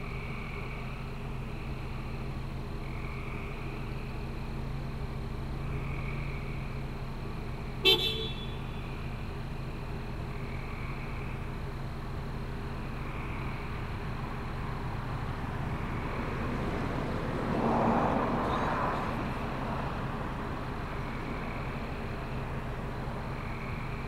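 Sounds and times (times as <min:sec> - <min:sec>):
car horn toot: 0:07.8 - 0:08.8.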